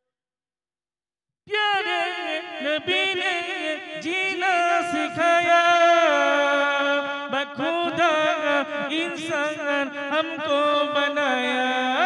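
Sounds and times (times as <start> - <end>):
man singing unaccompanied: 1.5 - 12.0.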